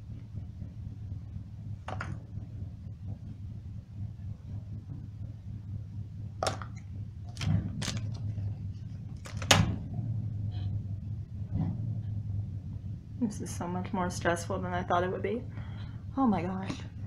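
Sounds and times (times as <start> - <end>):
steady low hum: 0.0 - 17.0
small objects clicking and knocking: 6.4 - 8.2, 9.2 - 9.7.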